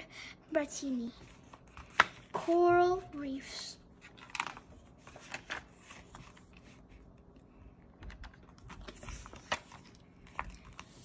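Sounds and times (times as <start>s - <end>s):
book pages turning: 1.2s - 2.6s, 4.0s - 11.0s.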